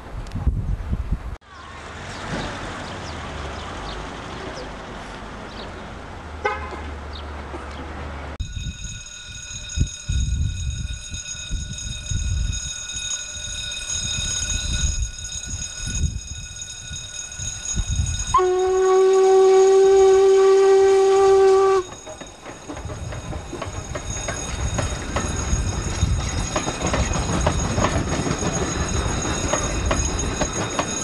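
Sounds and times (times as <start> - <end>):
steam locomotive chuffing: 8.6 - 31.0
steam whistle blast: 18.3 - 21.9.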